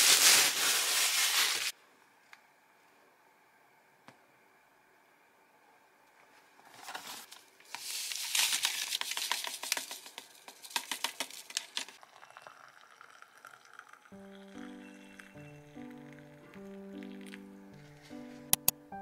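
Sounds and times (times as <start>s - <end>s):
plastic sachet crinkling: 0.0s - 1.7s, 7.6s - 12.0s
water pouring into a mug: 12.0s - 17.4s
music: 14.2s - 19.0s.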